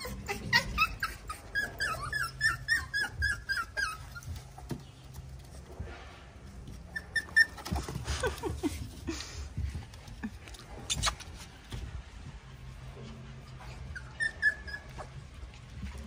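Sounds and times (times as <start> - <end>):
puppies whimpering and yipping: 0.0 - 4.9, 6.7 - 9.0, 12.5 - 16.0
paws pattering on wooden boards: 2.0 - 5.9, 6.6 - 14.0.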